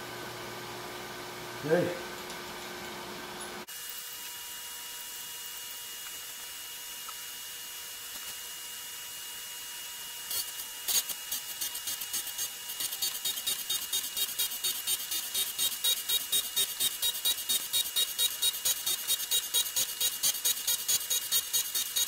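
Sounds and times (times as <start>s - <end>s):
grinder spindle whining: 9.8s - 22.0s
grinding wheel cutting steel: 10.3s - 22.0s.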